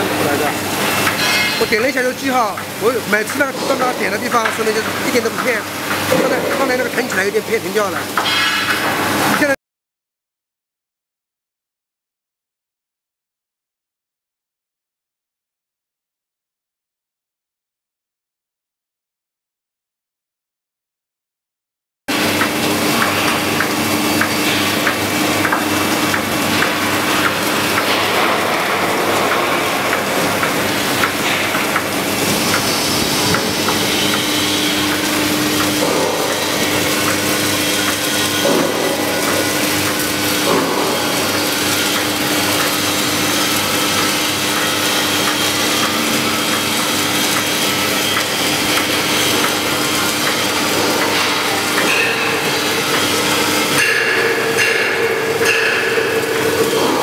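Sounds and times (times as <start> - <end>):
constant machine hum: 0.0 - 9.6, 22.1 - 57.0.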